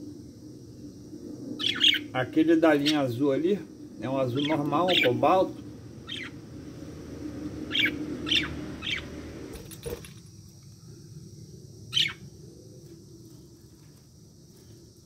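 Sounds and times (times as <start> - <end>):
low rumble: 0.0 - 10.4
budgerigars chirping: 1.6 - 2.1, 4.4 - 5.2, 6.0 - 6.4, 7.7 - 9.2, 11.9 - 12.2.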